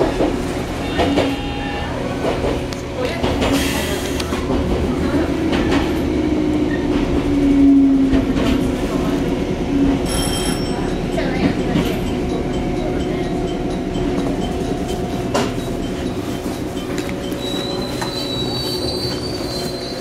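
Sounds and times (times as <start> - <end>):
train wheels rumbling: 0.0 - 20.0.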